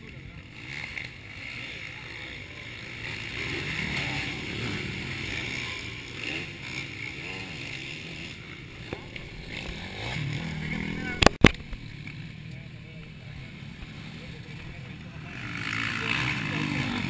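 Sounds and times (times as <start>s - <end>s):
distant dirt bike engines: 0.0s - 17.0s.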